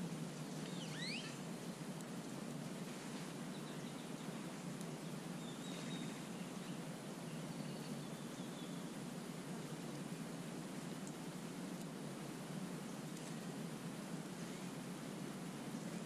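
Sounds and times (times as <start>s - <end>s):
outdoor background noise: 0.0s - 16.0s
faint high chirps: 0.5s - 1.4s.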